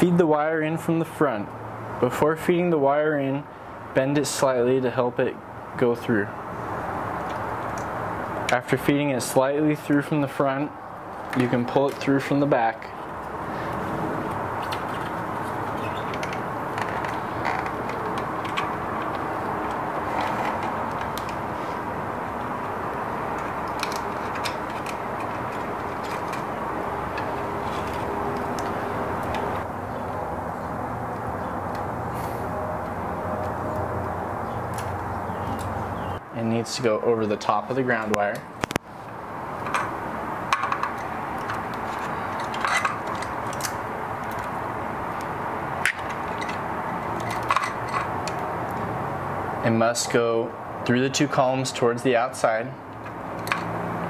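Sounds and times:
small parts clicking and rattling: 13.7 - 21.4, 23.3 - 29.5, 39.6 - 44.6, 45.2 - 48.9.

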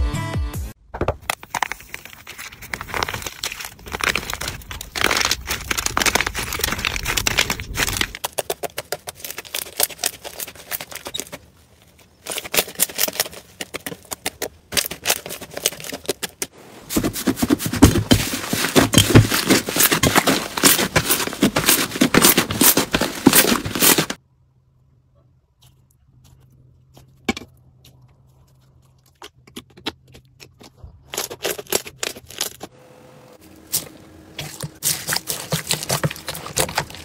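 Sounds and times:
slime crackling and popping: 1.5 - 10.9.

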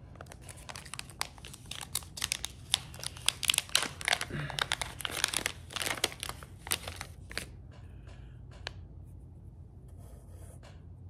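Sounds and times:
plastic packaging crinkling: 0.1 - 7.5.

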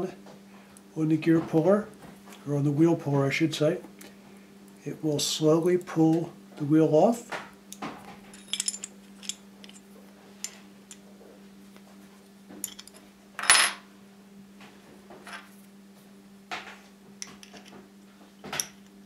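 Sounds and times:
steady low hum: 0.0 - 19.0
small metal clicks and clinks: 8.3 - 9.8.

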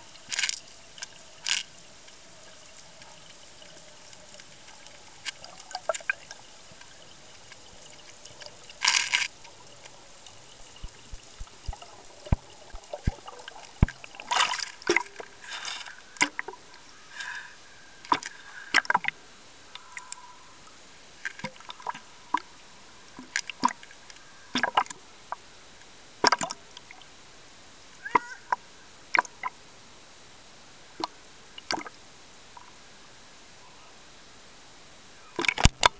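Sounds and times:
sea water sloshing and splashing: 0.0 - 17.4.

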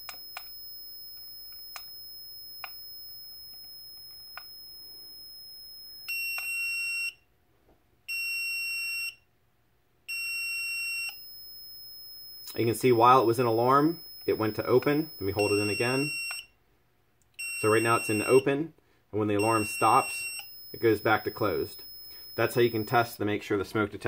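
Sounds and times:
continuity tester high beep: 0.0 - 7.2, 10.1 - 16.6, 17.4 - 18.5, 19.3 - 23.2
smoke detector alarm beeps: 0.0 - 7.2, 8.1 - 9.2, 10.1 - 16.6, 17.4 - 18.5, 19.3 - 23.2.

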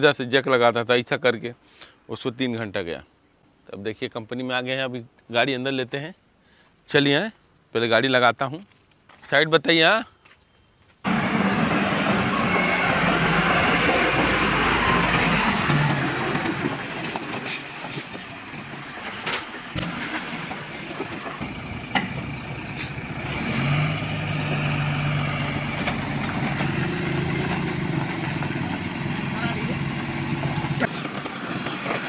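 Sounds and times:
truck diesel engine running: 11.1 - 32.0.

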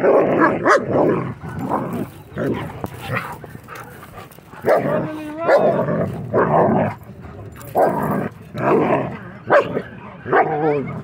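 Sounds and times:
dogs barking and growling: 0.0 - 11.0.

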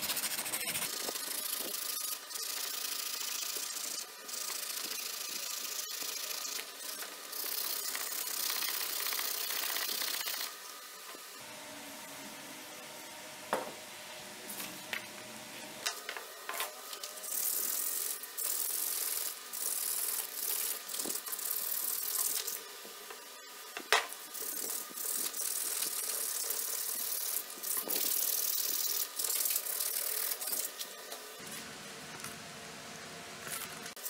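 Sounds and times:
abrasive paper scraping metal blade: 0.0 - 10.6, 16.6 - 22.6, 24.2 - 31.0.

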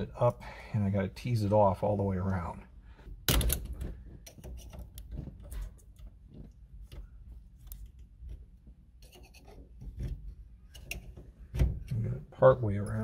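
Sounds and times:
small metal clicks and scrapes: 4.2 - 11.2.

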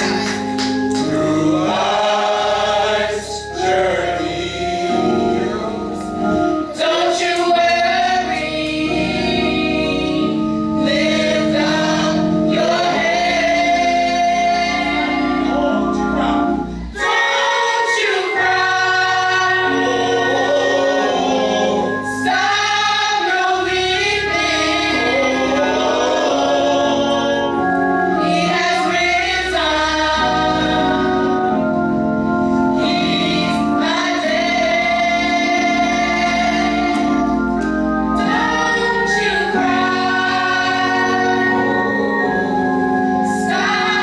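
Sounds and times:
gospel choir singing: 0.0 - 44.0.

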